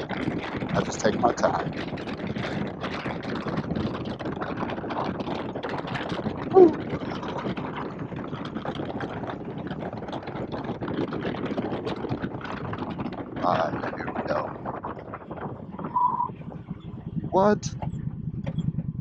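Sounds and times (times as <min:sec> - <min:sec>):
motorcycle engine running: 0:00.0 - 0:19.0
wind rushing over microphone: 0:00.0 - 0:19.0.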